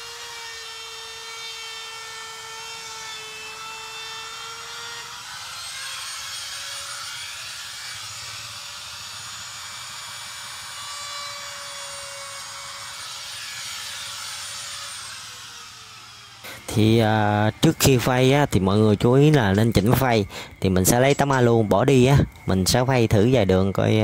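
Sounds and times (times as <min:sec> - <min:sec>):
router whining: 0:00.0 - 0:24.0
cutting hiss: 0:01.0 - 0:23.2.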